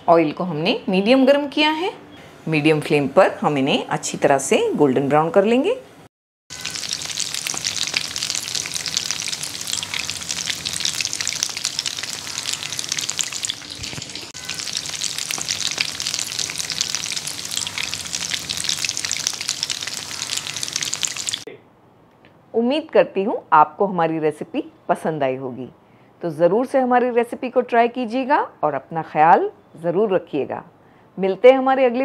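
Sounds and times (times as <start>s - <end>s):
oil sizzling and crackling: 6.5s - 21.5s.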